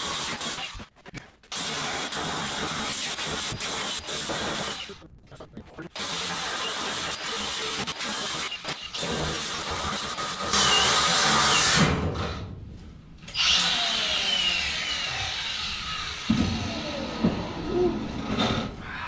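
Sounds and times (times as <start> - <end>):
power tool cutting steel: 1.5 - 5.0, 6.0 - 12.0, 13.3 - 18.6.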